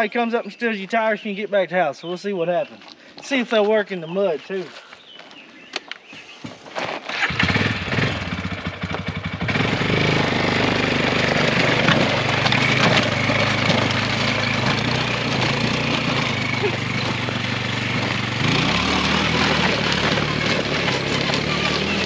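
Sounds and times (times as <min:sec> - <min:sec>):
electric starter cranking: 0:07.0 - 0:22.0
quad engine running: 0:07.1 - 0:22.0.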